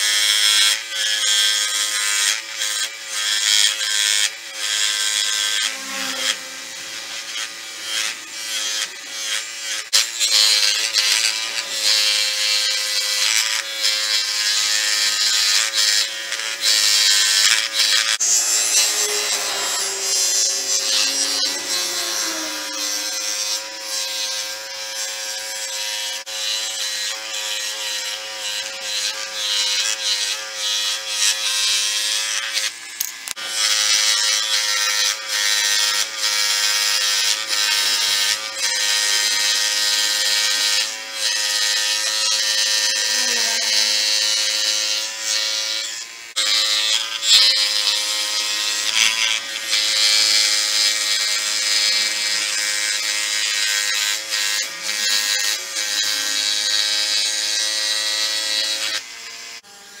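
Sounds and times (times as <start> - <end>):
power tool motor whine: 0.0 - 60.0
abrasive grinding hiss: 18.2 - 23.6.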